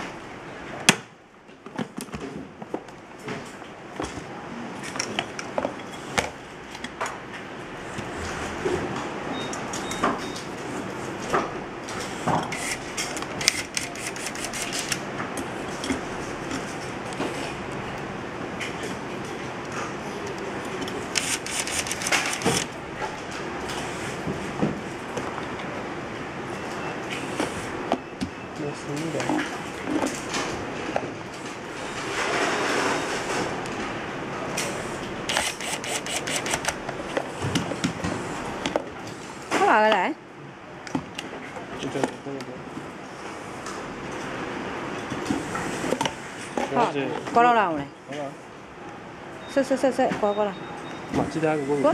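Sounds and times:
steady background noise: 0.0 - 51.9
electric screwdriver on metal: 13.4 - 15.0, 21.1 - 22.7, 35.3 - 36.8.

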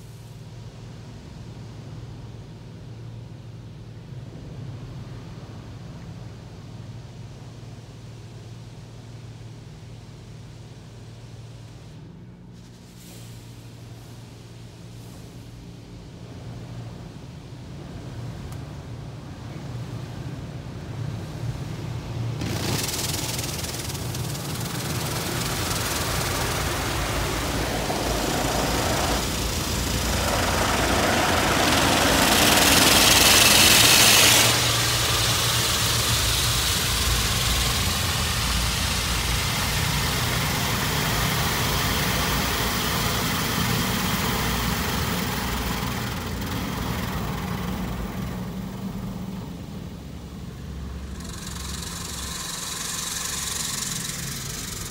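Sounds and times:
car wash water jets hissing: 9.3 - 54.9
low hum: 13.6 - 54.9.

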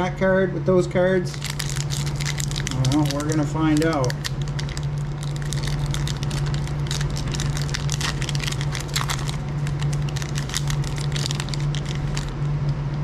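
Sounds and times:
steady low hum: 0.0 - 13.0
foil wrapper crinkling: 1.3 - 12.4.

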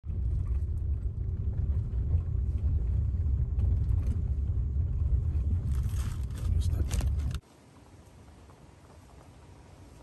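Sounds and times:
vehicle rumble on dirt track: 0.0 - 7.4.

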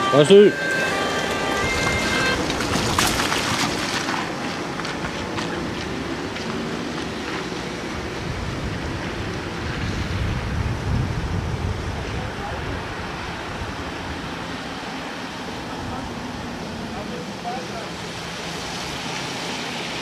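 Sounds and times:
wind blowing on microphone: 1.4 - 16.9.

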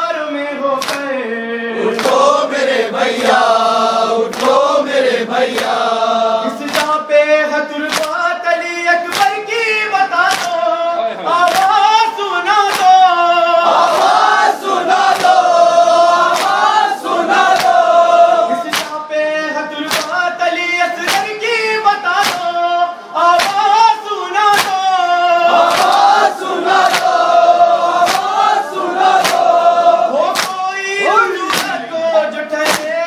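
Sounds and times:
man chanting a lament: 0.0 - 2.5, 6.2 - 15.0, 18.0 - 26.3, 29.6 - 33.0
congregation voices joining in: 0.0 - 33.0
hands slapping on chests: 0.8 - 1.1, 1.9 - 2.3, 3.1 - 3.5, 4.2 - 5.8, 6.5 - 7.0, 7.8 - 8.2, 9.1 - 9.4, 10.2 - 10.6, 11.4 - 11.8, 12.6 - 13.1, 13.7 - 17.9, 18.6 - 19.0, 19.8 - 20.2, 21.0 - 21.4, 22.2 - 22.6, 23.4 - 23.7, 24.5 - 24.9, 25.5 - 29.6, 30.3 - 30.7, 31.4 - 31.8, 32.6 - 33.0.

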